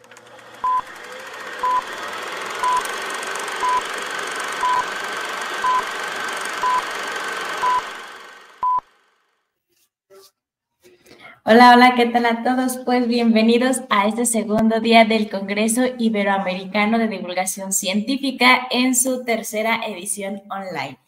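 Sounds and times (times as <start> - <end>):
short high beeps: 2.6 - 2.9, 3.6 - 3.8, 4.6 - 4.8, 5.6 - 5.9, 6.6 - 6.8, 7.6 - 7.8, 8.6 - 8.8.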